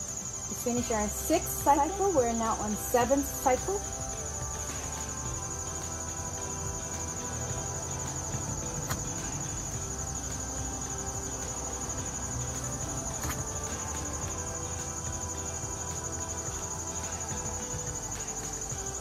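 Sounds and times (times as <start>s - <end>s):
faint music: 0.0s - 19.0s
insect chorus trilling: 0.0s - 19.0s.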